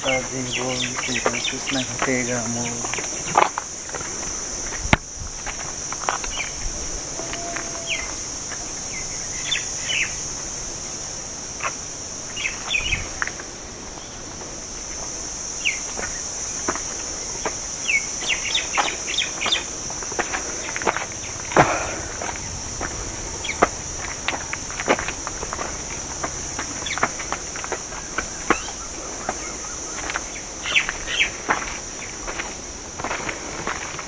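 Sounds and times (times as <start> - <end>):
high-pitched insect buzz: 0.0 - 33.9
footsteps on stone steps: 0.1 - 8.8, 15.8 - 34.0
bird chirps: 7.2 - 8.2, 23.1 - 23.7.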